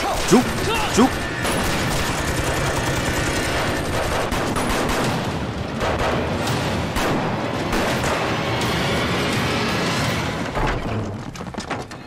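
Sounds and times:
heavy gunfire: 0.0 - 8.3
machine-gun fire: 0.2 - 6.3.

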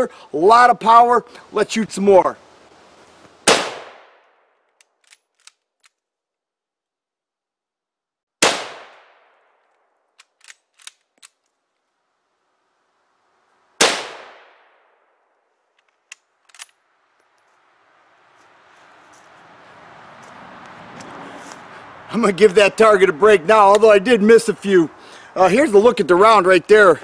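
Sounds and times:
rifle shots: 3.4 - 4.2, 8.4 - 9.4, 13.8 - 14.8
rifle bolt clicks: 4.7 - 6.0, 10.2 - 11.4.

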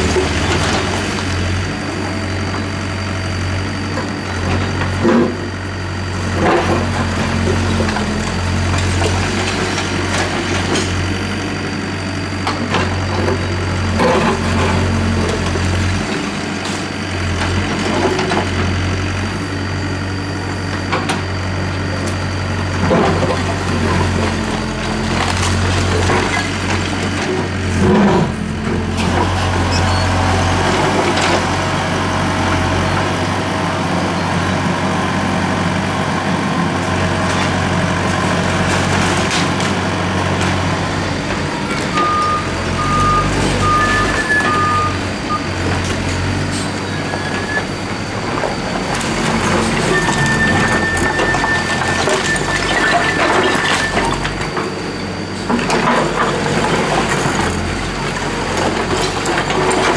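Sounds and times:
diesel truck engine running: 0.0 - 59.9
long high beep: 41.9 - 45.5
short electronic beeps: 41.9 - 45.5.

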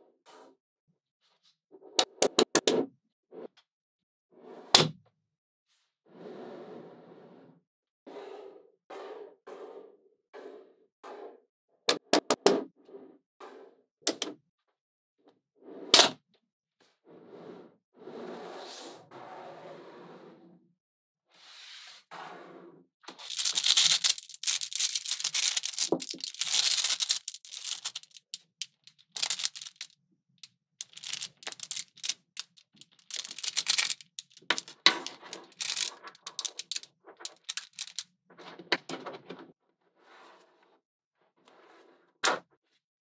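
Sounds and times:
magnetic balls clicking and rattling: 23.1 - 38.0.

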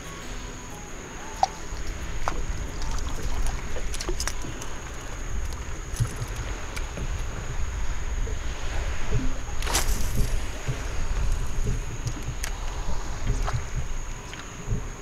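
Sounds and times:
water lapping against boat hull: 0.0 - 15.0
wind rumble on microphone: 0.0 - 15.0.

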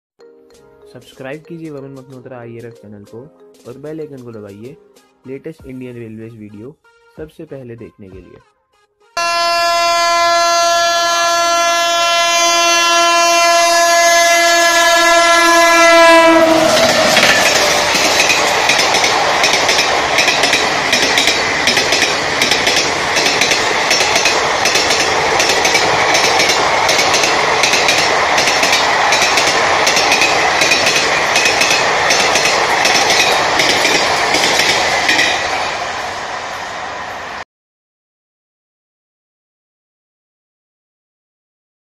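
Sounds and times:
locomotive horn blast: 9.2 - 18.0
train coaches rushing past: 15.5 - 37.4
wheels clacking over rail joints: 16.6 - 35.6.

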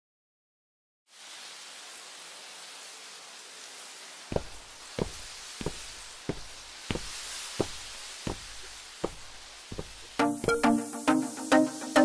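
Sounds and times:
steady hiss: 1.1 - 12.0
sharp evenly spaced knocks: 4.3 - 10.9.

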